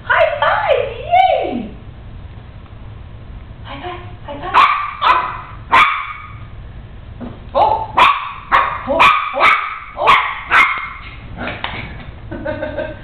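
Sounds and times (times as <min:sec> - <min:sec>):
puppy barking: 0:04.5 - 0:06.5, 0:07.8 - 0:11.2.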